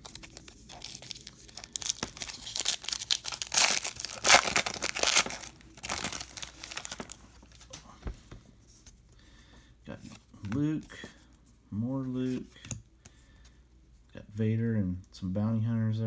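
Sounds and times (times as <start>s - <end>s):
foil wrapper tearing and crinkling: 0.0s - 7.2s.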